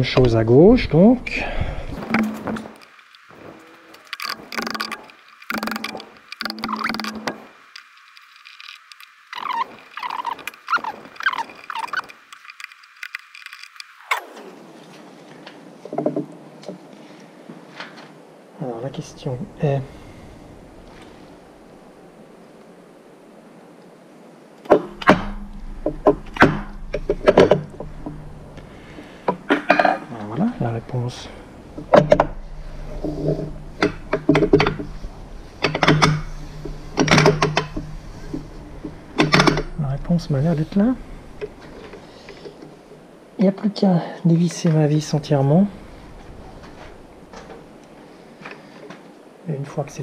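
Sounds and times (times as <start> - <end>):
screw squeaking: 4.0 - 7.5, 8.2 - 13.8, 31.9 - 40.0
low hum: 18.7 - 43.4.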